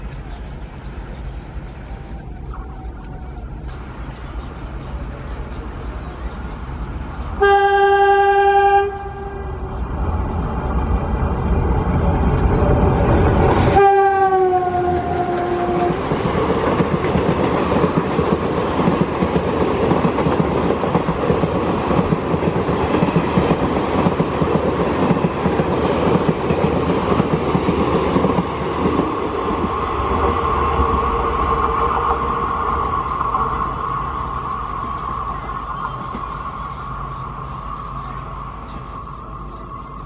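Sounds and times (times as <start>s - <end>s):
diesel locomotive engine rumbling: 0.0s - 40.0s
train horn with falling pitch: 7.4s - 9.7s, 13.6s - 16.1s
train wheels clattering: 13.1s - 30.2s.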